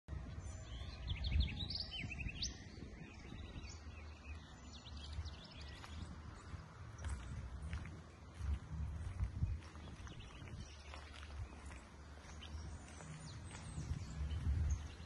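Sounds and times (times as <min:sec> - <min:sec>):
small birds chirping: 0:00.2 - 0:15.0
low uneven rumble: 0:03.0 - 0:15.0.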